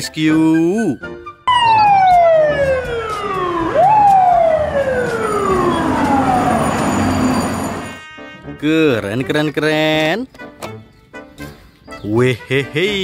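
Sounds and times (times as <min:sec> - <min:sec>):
fire truck siren: 0:01.5 - 0:08.1.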